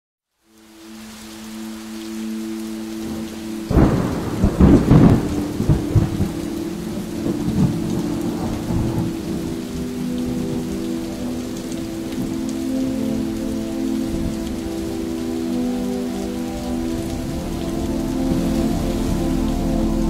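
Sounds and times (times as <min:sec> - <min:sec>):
steady rain falling: 0:00.3 - 0:20.0
thunder crack and rumble: 0:03.7 - 0:09.6.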